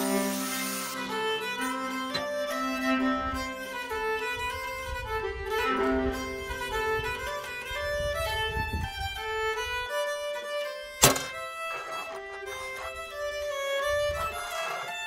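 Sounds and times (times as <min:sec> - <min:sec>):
angle grinder cutting steel: 0:00.0 - 0:03.8
violin background music: 0:00.0 - 0:15.0.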